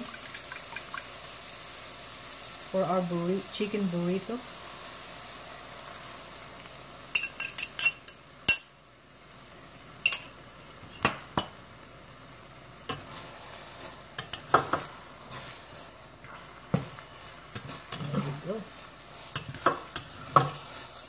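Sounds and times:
eggs sizzling in a pan: 0:00.0 - 0:21.0
spatula knocking in a pan: 0:14.2 - 0:14.9, 0:19.4 - 0:20.6.

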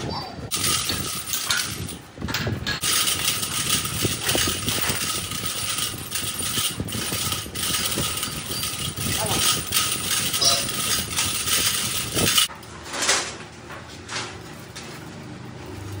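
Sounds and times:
lathe whirr and rattle: 0:00.5 - 0:12.7.

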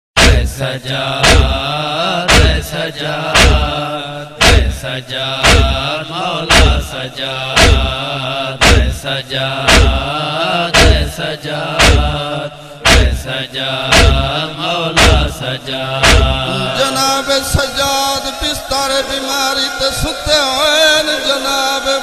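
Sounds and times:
wordless chorus chant: 0:00.2 - 0:22.0
heavy regular beat: 0:01.2 - 0:01.6, 0:02.3 - 0:02.6, 0:03.4 - 0:03.8, 0:04.4 - 0:04.8, 0:05.4 - 0:05.8, 0:06.5 - 0:06.8, 0:07.6 - 0:08.0, 0:08.6 - 0:09.0, 0:09.7 - 0:10.1, 0:10.8 - 0:11.1, 0:11.8 - 0:12.2, 0:12.8 - 0:13.2, 0:13.9 - 0:14.3, 0:15.0 - 0:15.3, 0:16.0 - 0:17.1.

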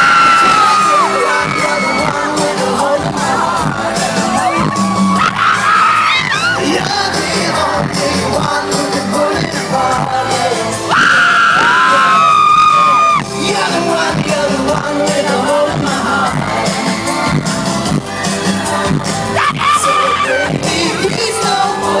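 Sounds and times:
live pop band playing: 0:00.0 - 0:22.0
man singing: 0:00.0 - 0:22.0.

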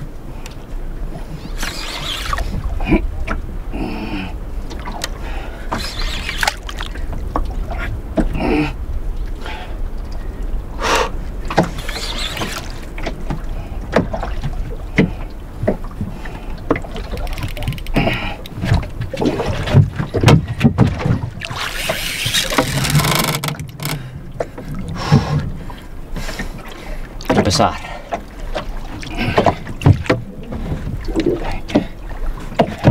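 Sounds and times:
water splashing against boat hull: 0:00.5 - 0:03.6, 0:04.6 - 0:08.5, 0:11.2 - 0:32.9
low steady rumble: 0:02.3 - 0:05.7, 0:06.5 - 0:11.9.

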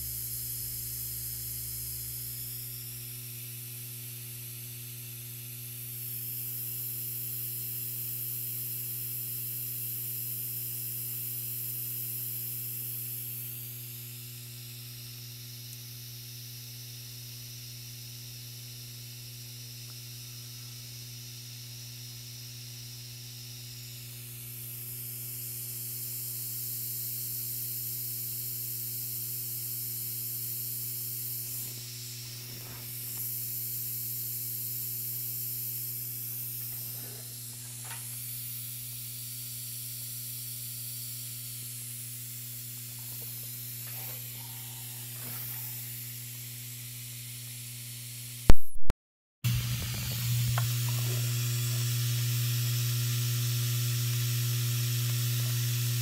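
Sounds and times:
high hiss: 0:00.0 - 0:03.0, 0:31.0 - 0:38.8, 0:42.8 - 0:46.6
vibratory bowl feeder hum: 0:00.0 - 0:48.6, 0:49.5 - 0:56.0.

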